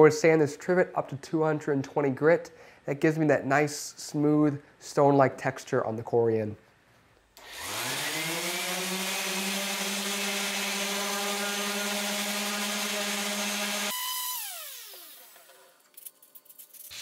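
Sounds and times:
orbital sander running: 7.4 - 15.6.

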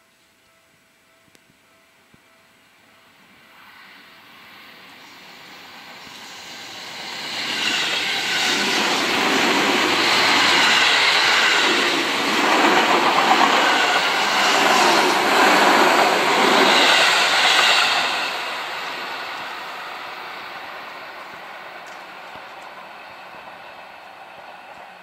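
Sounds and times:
train wheels clattering on rails: 6.0 - 25.0.

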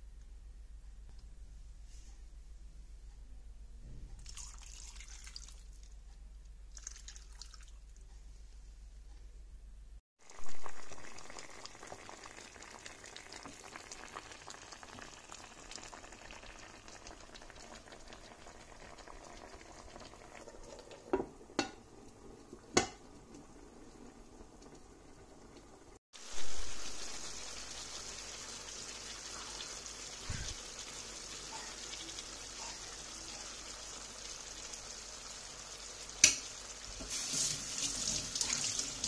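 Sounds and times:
food bubbling and sizzling: 10.2 - 39.0.

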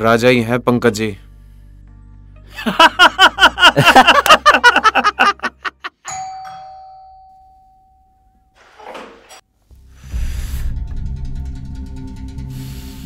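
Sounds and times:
electronic doorbell chime: 6.1 - 8.6.

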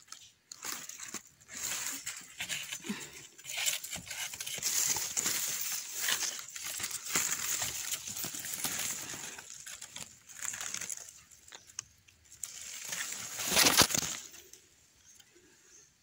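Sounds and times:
mushroom pulled from the ground: 0.1 - 14.7
dry leaves rustling and crackling: 0.5 - 14.4.

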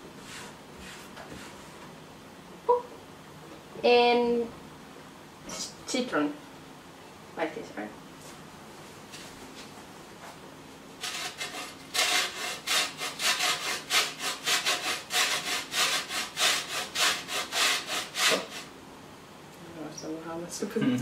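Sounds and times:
peel rasping on metal grater: 11.0 - 18.7.

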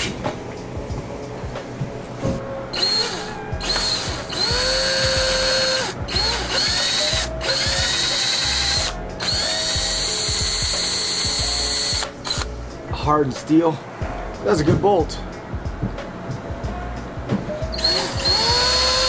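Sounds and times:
cordless drill whining: 2.8 - 12.5, 17.7 - 19.0.

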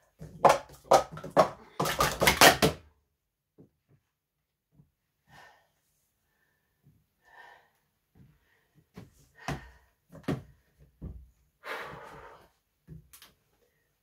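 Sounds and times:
person breathing: 5.2 - 10.1, 11.6 - 12.7.

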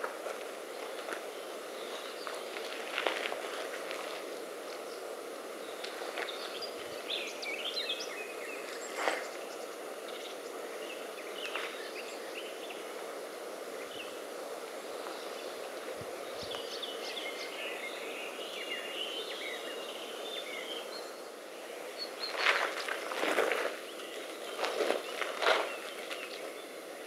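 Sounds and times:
outdoor background noise: 0.0 - 27.0
birds chirping: 0.6 - 27.0
feet scuffing on gravel: 1.9 - 4.3, 22.3 - 26.3.

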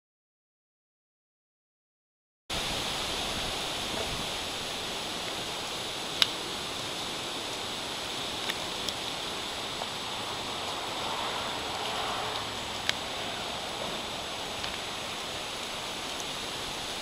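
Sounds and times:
rain and wind through trees: 2.5 - 17.0
sharp ticks: 6.1 - 6.4, 11.6 - 13.1.

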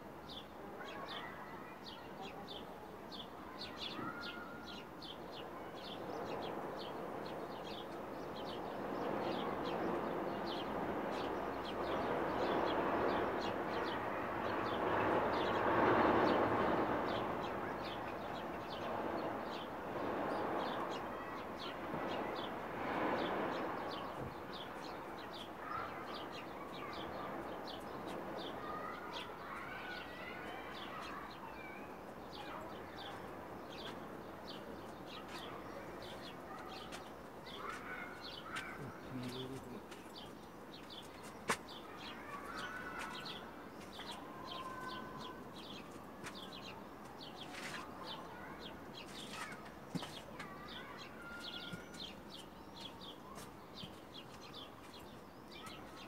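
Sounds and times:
small birds chirping: 0.1 - 56.0.

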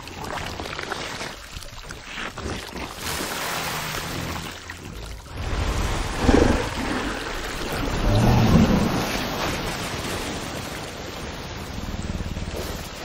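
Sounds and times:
deep growls: 4.0 - 9.6
rushing rumble: 5.3 - 13.0.

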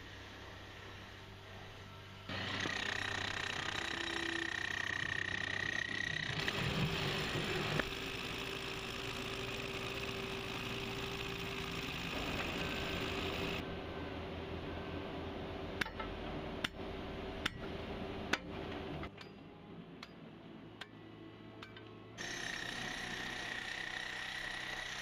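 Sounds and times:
machine running with whine: 0.0 - 15.1, 22.2 - 25.0.

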